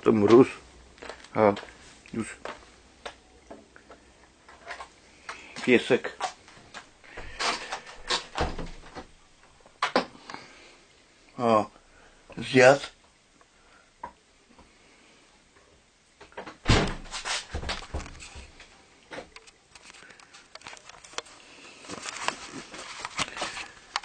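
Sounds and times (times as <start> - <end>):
wooden door banging shut: 8.0 - 9.1, 16.4 - 18.2.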